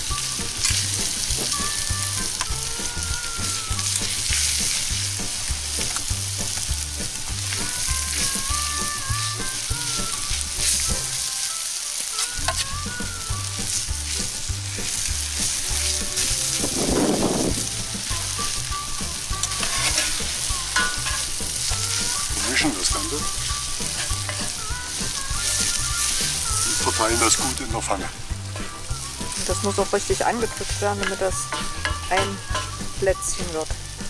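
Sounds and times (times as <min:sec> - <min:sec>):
soft music with low beat: 0:00.0 - 0:11.3, 0:12.2 - 0:34.0
potato sizzling in a pan: 0:00.0 - 0:34.0
metal spoon scraping a pan: 0:12.2 - 0:12.7, 0:19.3 - 0:33.0.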